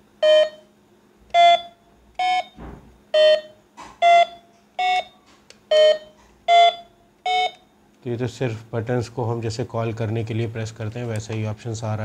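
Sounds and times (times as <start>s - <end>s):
toy telephone keypad beeps: 0.2s - 0.6s, 1.4s - 2.5s, 3.2s - 7.6s.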